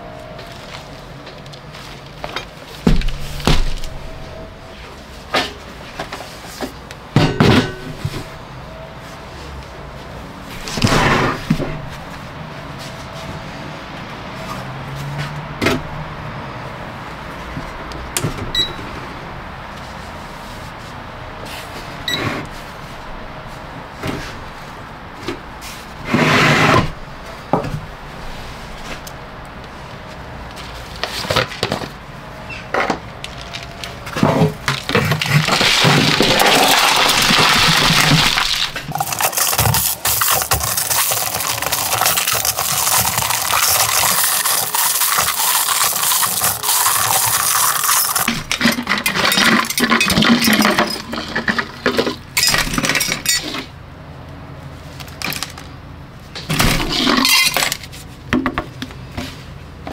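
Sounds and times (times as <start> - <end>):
metal chunks clinking and rattling: 34.7 - 53.7, 56.8 - 57.8.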